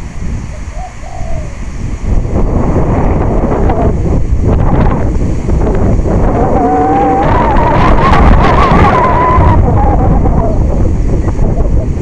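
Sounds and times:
wind buffeting microphone: 0.0s - 12.0s
wavering whine: 5.6s - 12.0s.

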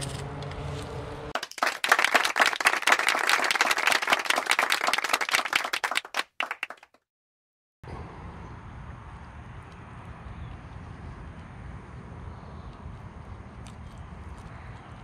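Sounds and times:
applause: 1.4s - 7.0s.

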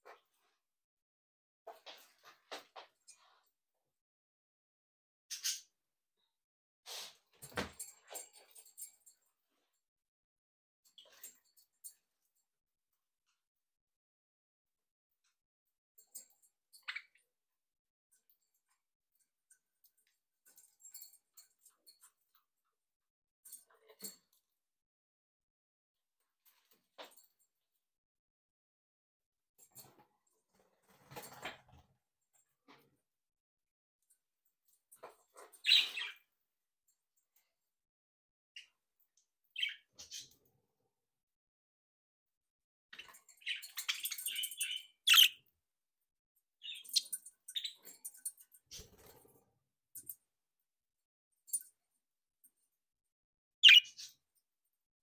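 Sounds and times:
budgerigars chirping: 53.6s - 54.0s.

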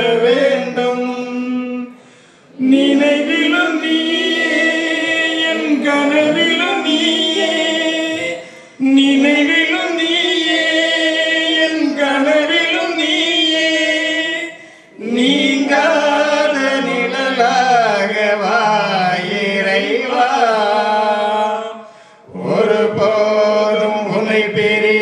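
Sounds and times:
voices singing a hymn: 0.0s - 25.0s.

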